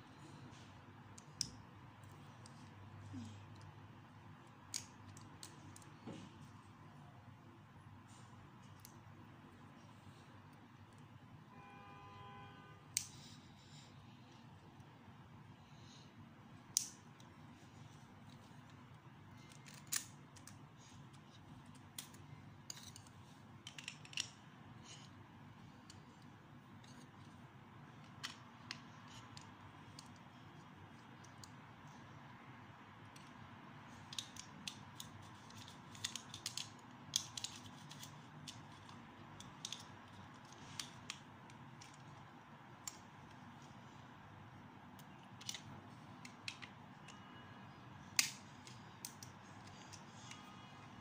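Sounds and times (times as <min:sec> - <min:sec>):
plastic bricks clicking: 0:19.4 - 0:20.6, 0:21.2 - 0:25.1, 0:33.1 - 0:42.2.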